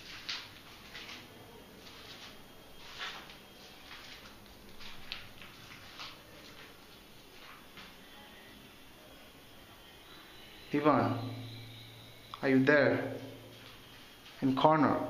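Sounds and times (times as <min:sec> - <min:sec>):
faint rustles and soft scrapes: 0:00.0 - 0:07.9.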